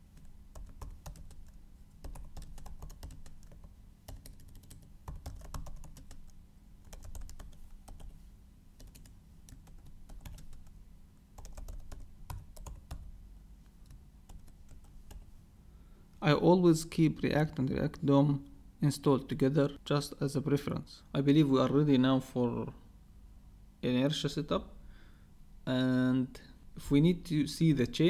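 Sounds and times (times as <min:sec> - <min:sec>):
faint low hum: 0:00.0 - 0:28.0
keyboard typing: 0:00.2 - 0:08.2, 0:08.8 - 0:10.7, 0:11.4 - 0:13.1, 0:13.8 - 0:15.3.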